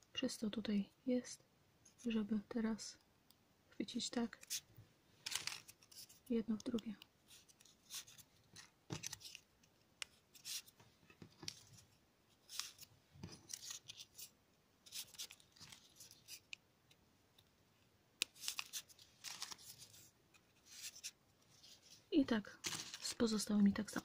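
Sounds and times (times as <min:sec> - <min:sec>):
paper rustling and scraping: 0:05.2 - 0:06.3, 0:07.3 - 0:09.4, 0:11.4 - 0:16.5, 0:18.3 - 0:22.0, 0:22.6 - 0:23.4.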